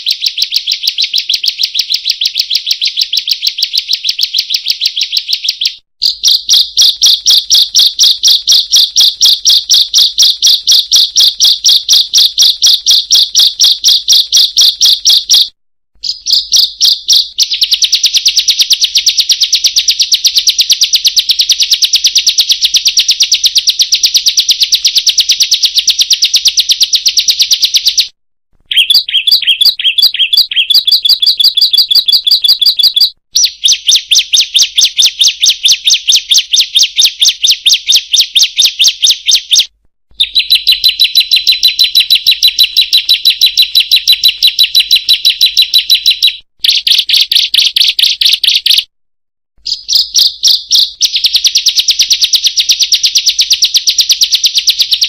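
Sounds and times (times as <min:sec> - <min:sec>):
songbird calling harsh high notes: 0:28.7 - 0:34.6.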